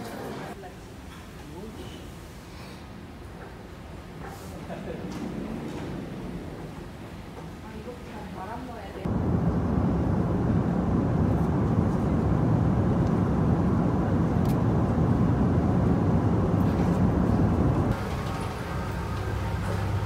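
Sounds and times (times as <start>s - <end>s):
airliner cabin engine rumble: 9.0s - 20.0s.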